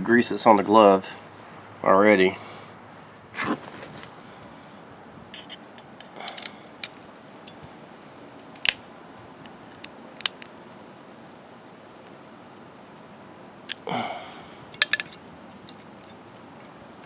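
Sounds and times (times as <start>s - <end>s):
sharp metal clinks: 4.1s - 4.8s, 14.7s - 15.2s
screwdriver scraping metal clips: 5.4s - 7.0s, 14.7s - 16.8s.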